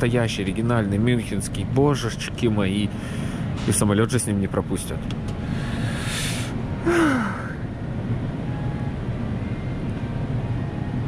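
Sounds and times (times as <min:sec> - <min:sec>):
steady low rumble: 0:00.0 - 0:11.0
man breathing out: 0:05.4 - 0:07.6
man sighing: 0:06.0 - 0:07.6.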